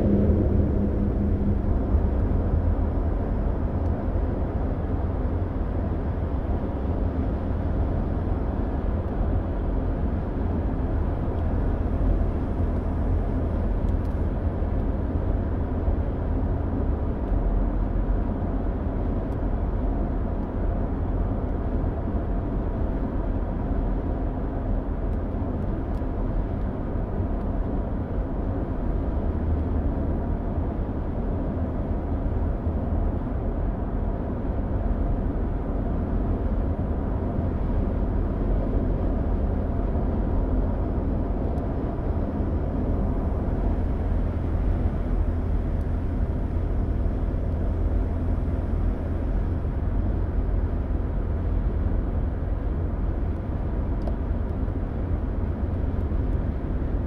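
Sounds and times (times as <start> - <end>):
car engine: 0.0 - 16.8, 35.2 - 57.0.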